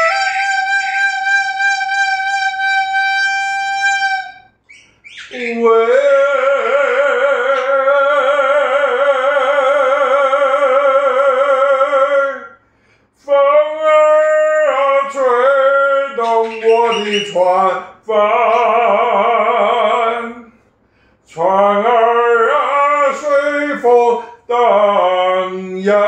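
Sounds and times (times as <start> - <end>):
man singing solo: 5.3 - 12.6, 13.2 - 20.5, 21.3 - 26.0.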